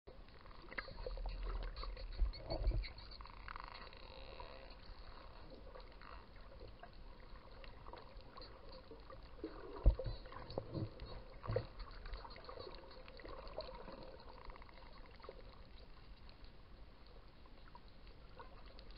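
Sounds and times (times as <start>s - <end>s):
low rumbling water noise: 0.1s - 18.9s
dolphins clicking: 0.2s - 18.9s
faint dolphin whistles: 1.0s - 5.4s.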